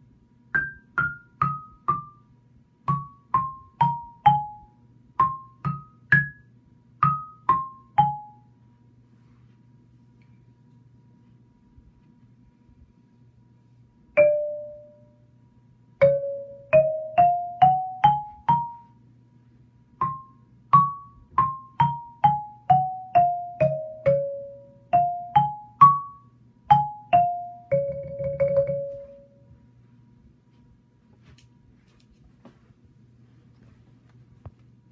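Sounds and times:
xylophone notes: 2.9 - 6.4, 7.0 - 8.4, 14.2 - 15.0, 16.0 - 18.9, 20.0 - 29.4.

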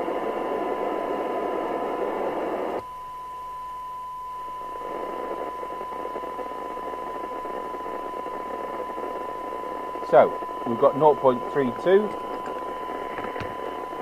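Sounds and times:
radio receiver hiss: 0.0 - 2.8, 4.4 - 14.0
steady test tone: 2.8 - 14.0.

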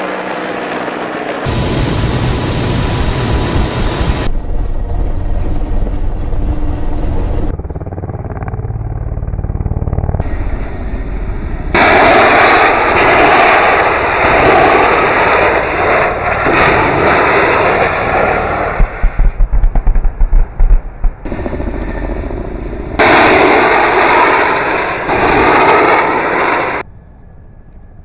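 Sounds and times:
helicopter turbines and rotor: 0.0 - 28.0
rockets firing with rushing noise: 1.5 - 4.3, 11.7 - 21.5, 22.7 - 26.8.

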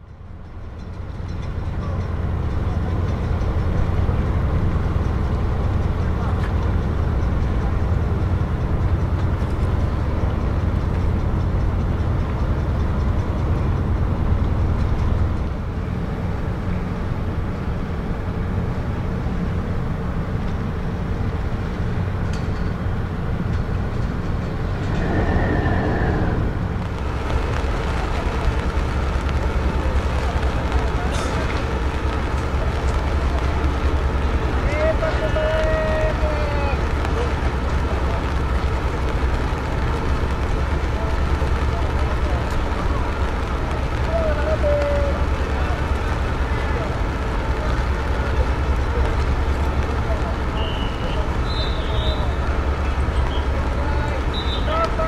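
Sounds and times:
ship diesel engines rumbling: 0.0 - 55.0
high falling tone: 24.6 - 27.1.

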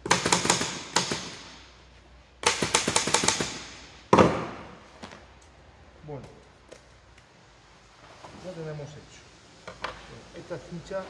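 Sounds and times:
pneumatic staple gun firing: 0.0 - 1.6, 2.4 - 4.5.

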